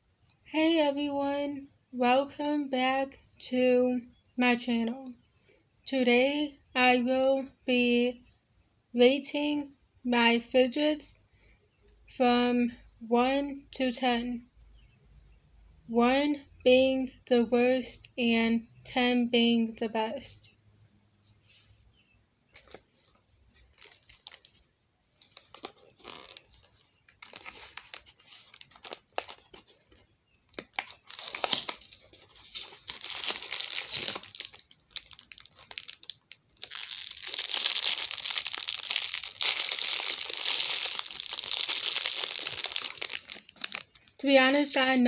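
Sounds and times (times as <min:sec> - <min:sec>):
cardboard box and plastic rustling: 0:22.5 - 0:44.2
plastic bag crinkling and tearing: 0:22.6 - 0:44.2.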